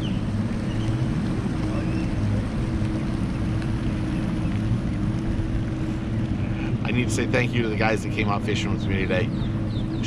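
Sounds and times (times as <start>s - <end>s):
boat engine humming: 0.0s - 10.0s.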